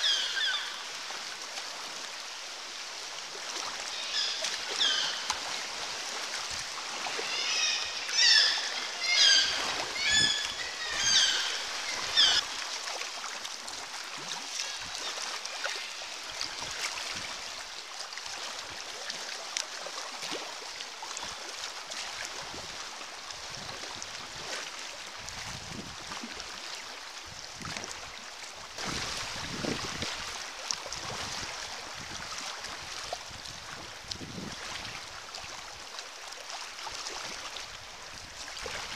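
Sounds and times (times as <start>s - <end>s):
seabirds calling: 0.0s - 0.9s, 3.9s - 5.4s, 7.0s - 12.4s
sea water washing: 0.0s - 38.9s
paddle strokes splashing: 0.8s - 26.8s, 27.6s - 38.9s.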